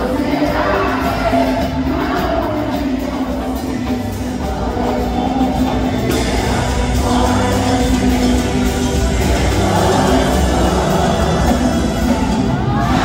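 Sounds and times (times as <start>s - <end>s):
live concert music through pa: 0.0s - 13.0s
person singing: 0.0s - 13.0s.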